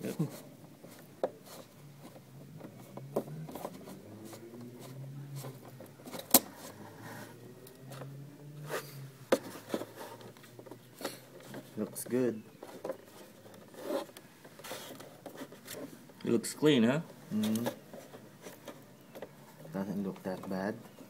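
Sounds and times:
clicks taps and rubbing on plastic: 0.4 - 6.6, 17.1 - 21.0.

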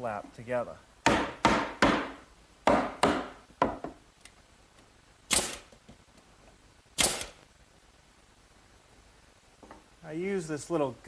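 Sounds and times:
mallet knocking on wood: 1.0 - 4.0
pneumatic nail gun firing: 5.3 - 5.8, 7.0 - 7.4.

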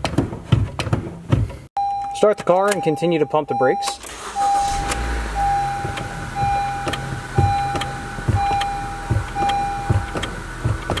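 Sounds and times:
brake pedal thumping: 0.0 - 2.9, 4.0 - 11.0
warning chime beeping: 1.8 - 10.1
car engine running: 4.1 - 11.0.

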